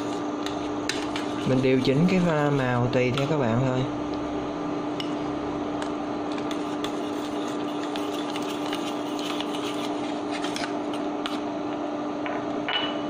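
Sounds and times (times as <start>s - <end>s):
metal spoon scraping a pot: 0.0s - 2.6s, 6.4s - 10.6s
induction cooktop humming: 0.0s - 13.0s.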